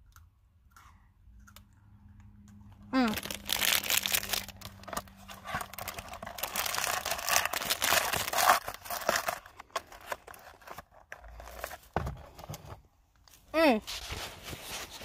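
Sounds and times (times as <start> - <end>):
foil snack wrapper crinkling: 3.0 - 11.7
cardboard box handled: 4.6 - 12.7.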